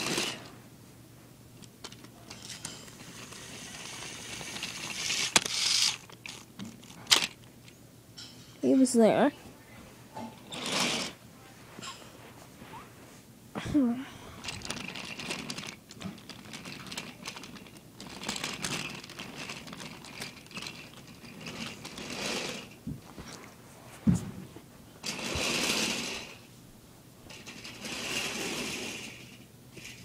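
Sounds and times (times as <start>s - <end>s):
plastic track clicks and rattles: 0.0s - 0.5s, 1.6s - 7.5s, 14.4s - 22.8s, 25.0s - 26.4s, 27.3s - 30.0s
toy train motor whirring: 0.0s - 0.5s, 1.8s - 7.4s, 10.5s - 11.2s, 14.4s - 22.8s, 25.0s - 26.4s, 27.3s - 30.0s.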